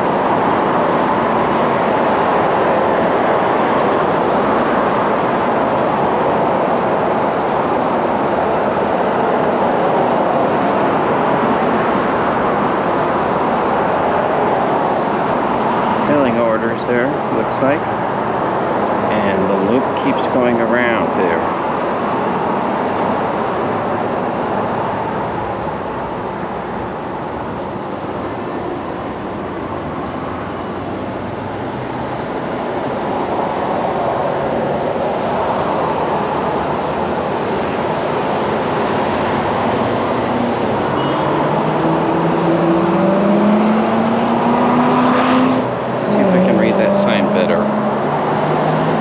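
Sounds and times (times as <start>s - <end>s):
road traffic noise: 0.0s - 49.0s
vehicle engine speeding up: 7.6s - 13.3s, 37.8s - 49.0s.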